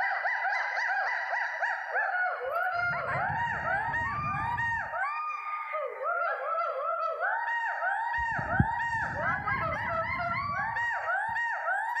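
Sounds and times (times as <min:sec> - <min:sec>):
gibbons whooping: 0:02.4 - 0:06.8, 0:08.2 - 0:12.0.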